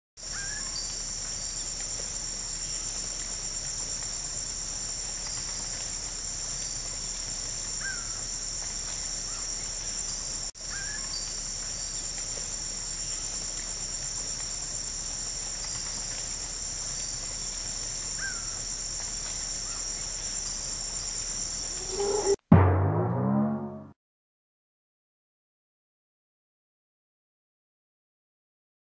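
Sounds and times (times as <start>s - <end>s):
high-pitched insect chorus: 0.2s - 22.4s
faint short chirps: 21.8s - 22.4s.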